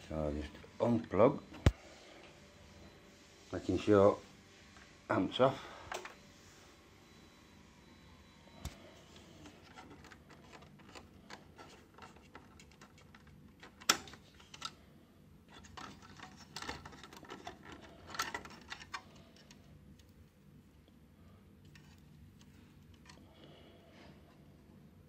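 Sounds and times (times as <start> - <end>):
small plastic clicks and scrapes: 9.6 - 14.8, 15.5 - 19.6.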